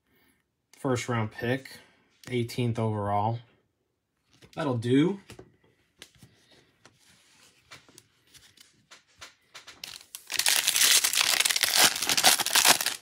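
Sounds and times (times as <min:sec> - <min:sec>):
cards tapping: 0:07.7 - 0:10.1
foil wrapper crinkling and tearing: 0:09.8 - 0:13.0.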